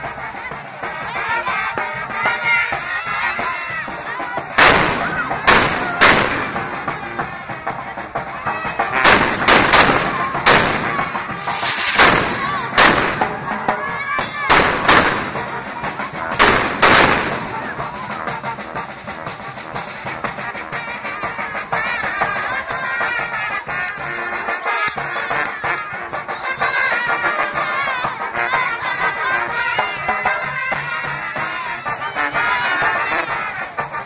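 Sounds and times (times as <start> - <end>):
brass band music: 0.0 - 34.0
fireworks crackling: 4.5 - 7.7, 8.8 - 18.0
loud firework bangs: 4.6 - 6.8, 9.0 - 13.6, 14.5 - 15.6, 16.4 - 17.7.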